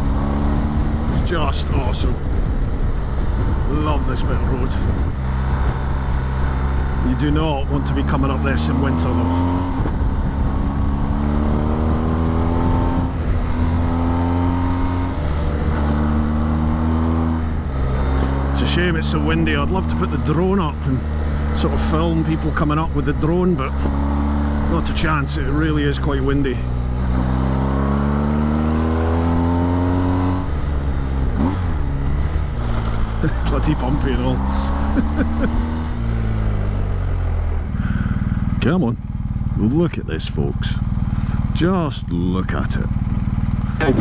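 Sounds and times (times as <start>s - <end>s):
wind buffeting microphone: 0.0s - 7.0s, 9.7s - 12.3s
motorcycle engine pulling: 4.7s - 30.2s, 31.3s - 36.6s.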